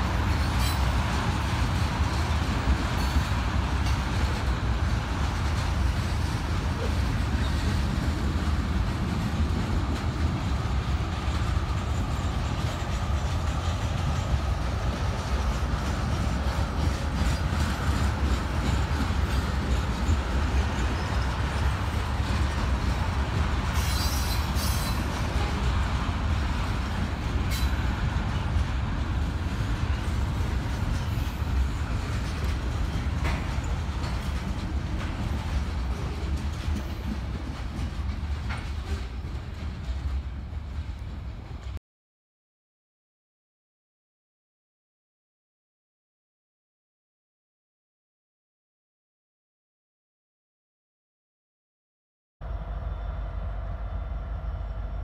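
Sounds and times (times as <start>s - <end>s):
train wheels rumbling on rails: 0.0s - 41.8s
high wheel squeals: 23.8s - 25.1s.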